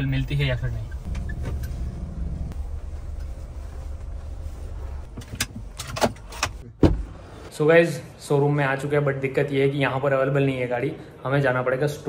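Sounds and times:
car engine and road rumble: 0.0s - 7.5s.

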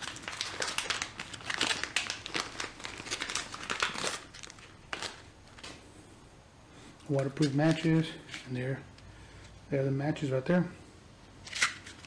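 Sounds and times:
plastic bag crinkling: 0.0s - 5.8s, 7.0s - 8.6s.

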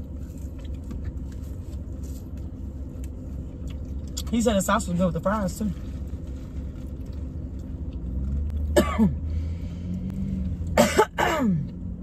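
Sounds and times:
car interior hum: 0.0s - 12.0s
woman coughing: 8.7s - 9.2s, 10.8s - 11.7s.

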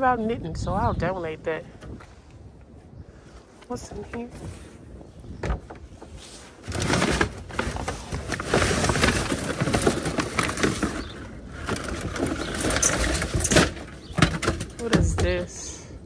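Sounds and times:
shopping bags rustling: 6.2s - 14.8s.

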